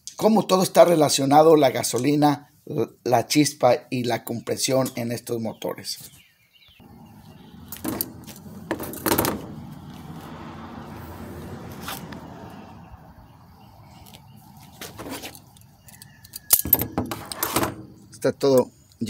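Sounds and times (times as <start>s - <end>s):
metal parts knocking and scraping: 15.0s - 18.1s.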